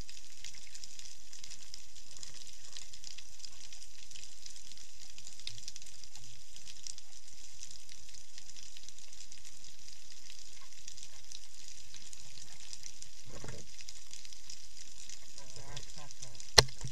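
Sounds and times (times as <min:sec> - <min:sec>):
snapping shrimp crackling: 0:15.1 - 0:16.9.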